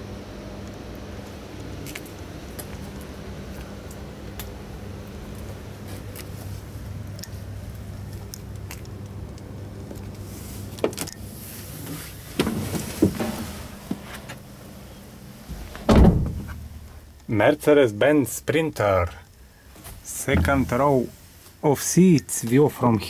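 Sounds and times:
steady low hum: 0.0 - 23.0
heavy thump: 15.5 - 16.8, 20.3 - 20.8.

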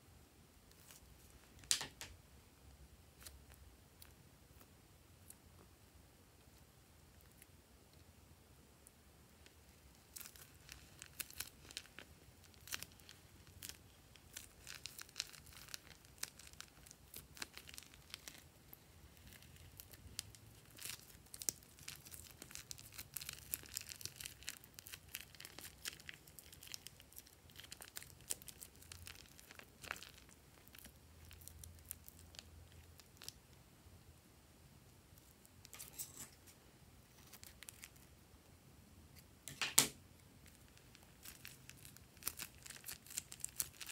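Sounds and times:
foam bead slime crackling: 9.4 - 33.6, 37.1 - 38.1, 40.3 - 43.9.

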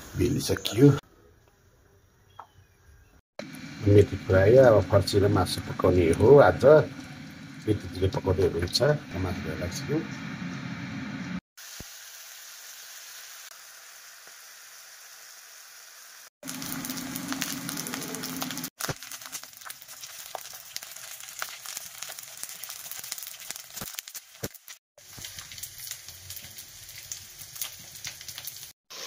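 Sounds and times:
meat sizzling in a wok: 11.6 - 29.0.

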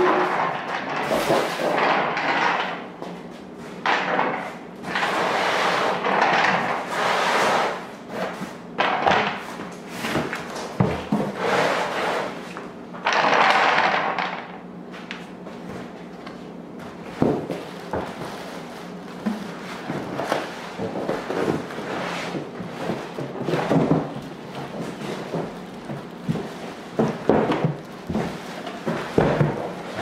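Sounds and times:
cardboard scraping and rustling: 17.4 - 30.0.

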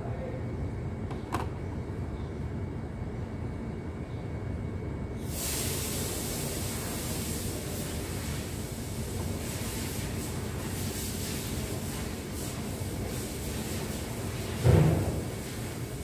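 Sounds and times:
low workshop rumble: 0.0 - 16.0
loud steady hiss: 5.2 - 16.0.

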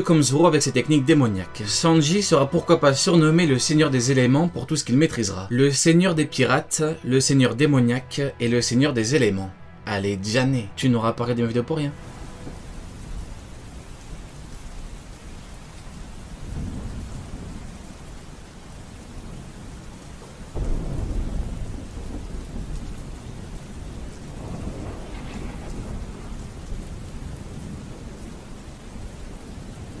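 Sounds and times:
heavy rain: 12.0 - 30.0
rolling thunder: 12.0 - 30.0.

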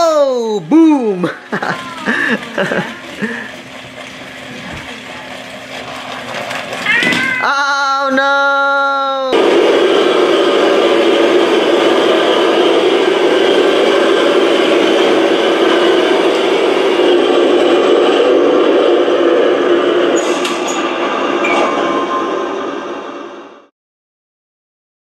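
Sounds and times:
toy tank motors and tracks: 1.5 - 7.4.

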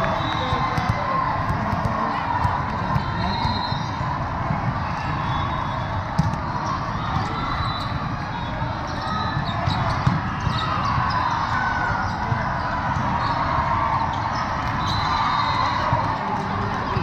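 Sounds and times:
crowd murmur: 0.0 - 17.0
volleyballs struck and bouncing: 0.4 - 5.2, 6.0 - 7.5, 8.6 - 13.2.

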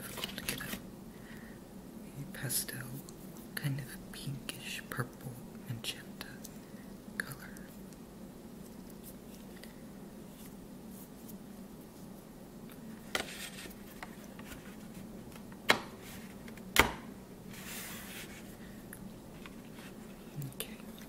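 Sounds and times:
soft brushing rustle: 8.6 - 12.3, 13.0 - 15.2, 17.5 - 21.0.

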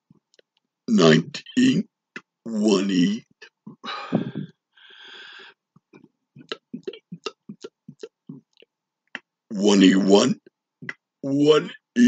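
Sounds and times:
short breath: 3.8 - 5.6
throat and mouth clicks: 5.8 - 9.3, 10.4 - 11.0
man belching words: 6.4 - 8.4.

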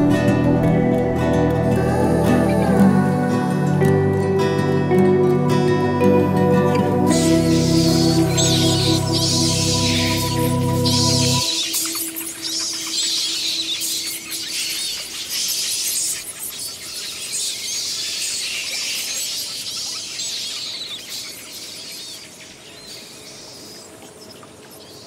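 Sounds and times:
background music: 0.0 - 13.6
birds chirping: 0.0 - 25.0.

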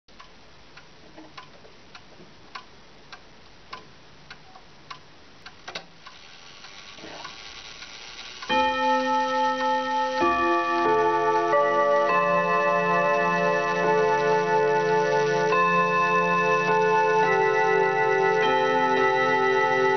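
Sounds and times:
wall clock ticking: 0.1 - 19.9
clock mechanism click and whir: 5.5 - 19.9
gong rods chime melody: 8.5 - 19.9.

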